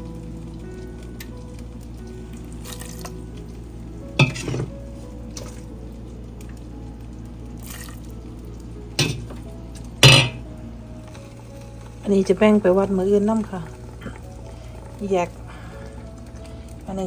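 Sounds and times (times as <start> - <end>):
broth simmering in a pot: 0.0 - 17.0
metal utensil clanking on pot: 4.2 - 4.7, 9.0 - 9.4, 10.0 - 10.4.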